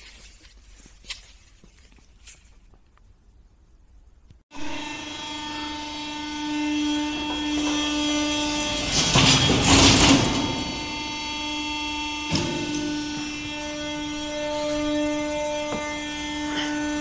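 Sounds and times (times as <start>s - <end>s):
hydraulic power unit whine: 3.0s - 17.0s
press rushing noise: 4.6s - 17.0s.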